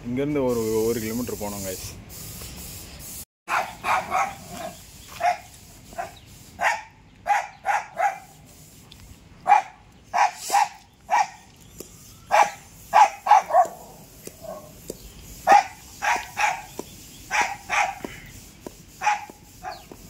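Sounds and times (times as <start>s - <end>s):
small dog barking: 3.5s - 8.3s, 9.4s - 11.4s, 12.3s - 14.8s, 15.5s - 16.7s, 17.3s - 18.1s, 19.0s - 19.9s.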